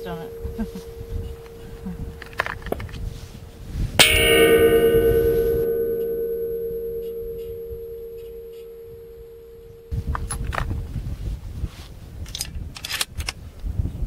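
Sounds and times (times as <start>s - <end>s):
bullet striking steel gong: 0.0s - 2.8s, 4.0s - 10.0s.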